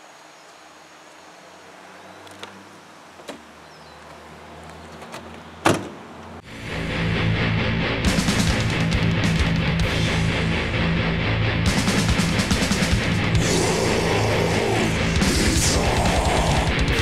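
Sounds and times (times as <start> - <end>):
car door clicking open: 5.0 - 6.0
car door slamming shut: 5.6 - 6.0
heavy metal music with electric guitar: 6.4 - 17.0.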